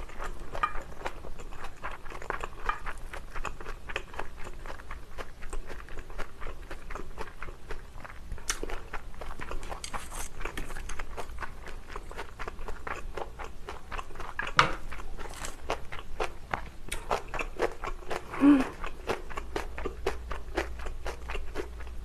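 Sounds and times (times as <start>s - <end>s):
wet chewing and crunching: 0.0s - 22.0s
person humming: 18.3s - 18.8s.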